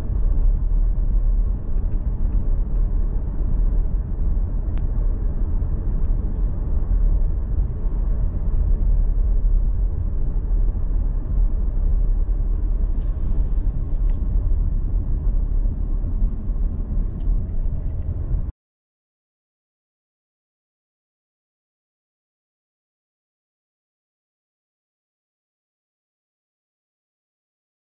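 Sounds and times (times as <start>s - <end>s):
vehicle driving rumble: 0.0s - 18.5s.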